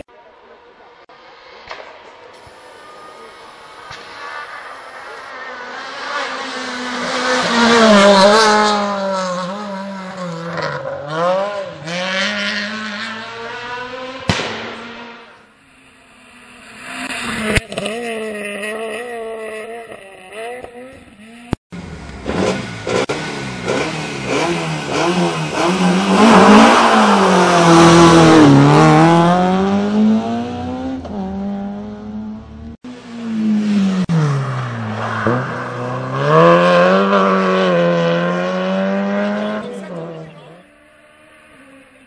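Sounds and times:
rally car passing at full throttle: 1.0 - 42.0
rally car engine revving: 2.8 - 15.5, 16.2 - 42.0.

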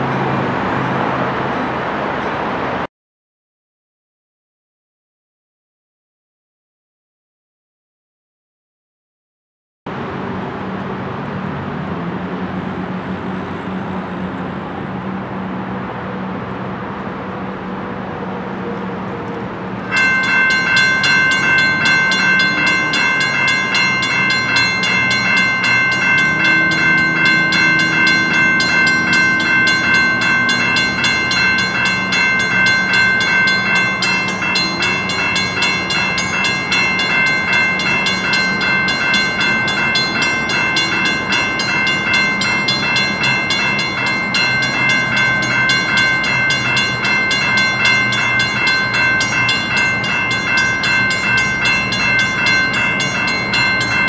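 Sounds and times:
railroad crossing bell ringing: 0.0 - 0.4, 19.8 - 54.0
diesel locomotive engine running: 9.9 - 54.0.

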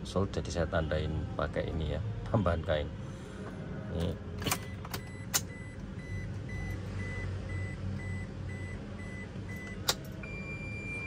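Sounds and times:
car warning chime beeping: 4.5 - 11.0.

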